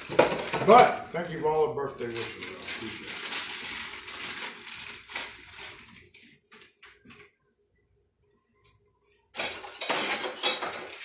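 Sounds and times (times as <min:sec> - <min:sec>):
dishes and utensils clattering: 0:09.3 - 0:11.0.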